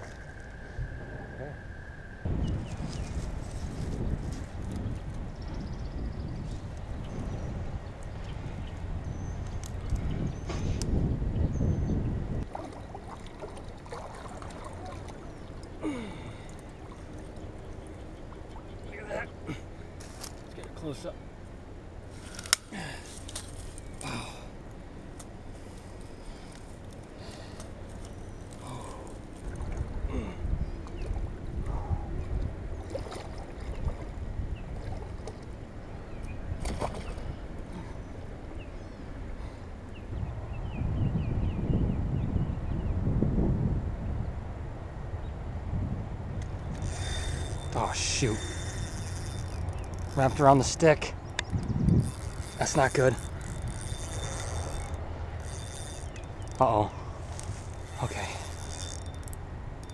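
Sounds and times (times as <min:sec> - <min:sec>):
faint clicks: 0:46.4 - 0:50.4, 0:51.2 - 0:56.6, 0:57.3 - 0:59.9.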